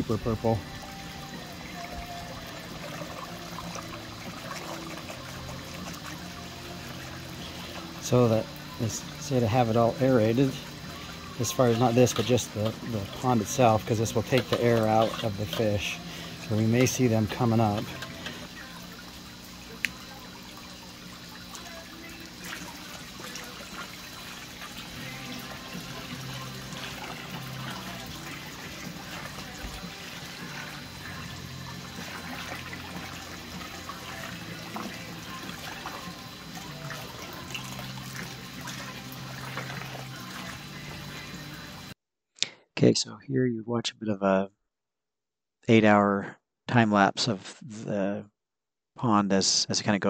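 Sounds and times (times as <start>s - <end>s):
pond fountain splashing: 0.0s - 42.0s
soft background music: 0.0s - 42.0s.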